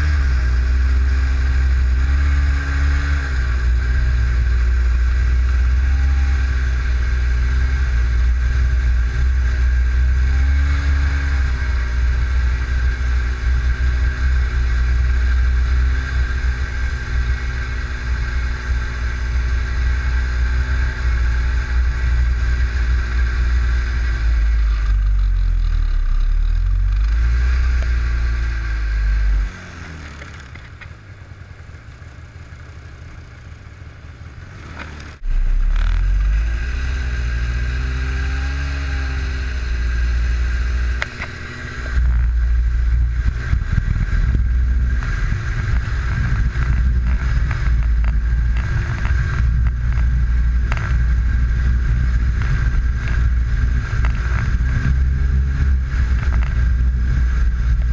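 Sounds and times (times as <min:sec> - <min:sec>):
snowmobile engine revving: 0:00.0 - 0:30.5, 0:34.5 - 0:57.9
steady high whine: 0:32.5 - 0:57.9
wind rumble on microphone: 0:35.2 - 0:57.9.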